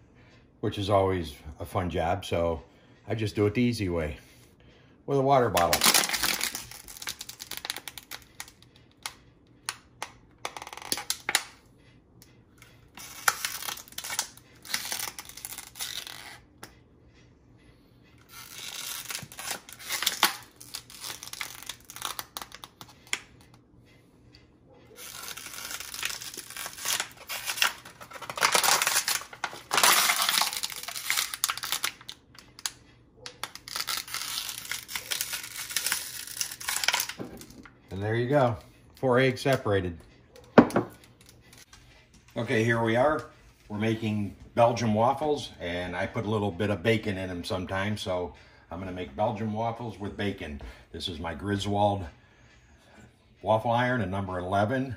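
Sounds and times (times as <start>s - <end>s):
plastic bottle crinkling: 25.0s - 32.2s.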